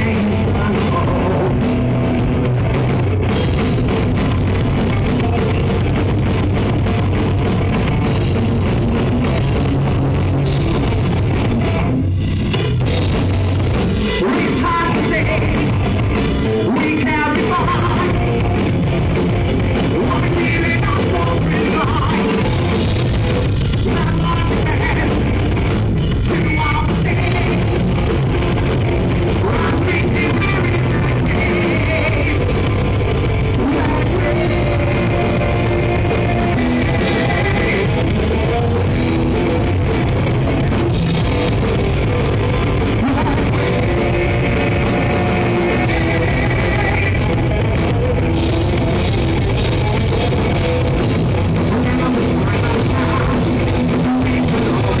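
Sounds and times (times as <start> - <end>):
distorted electric guitars: 0.0 - 55.0
drum kit: 0.0 - 55.0.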